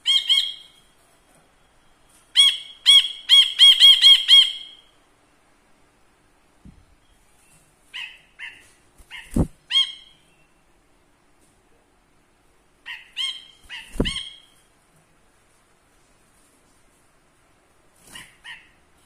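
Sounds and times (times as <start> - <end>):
bulbul calling: 12.9 - 14.6.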